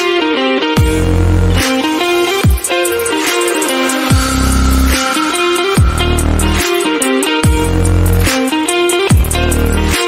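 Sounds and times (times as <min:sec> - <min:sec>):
electronic dance music: 0:00.8 - 0:10.0
deep bass note sliding down: 0:05.8 - 0:06.6.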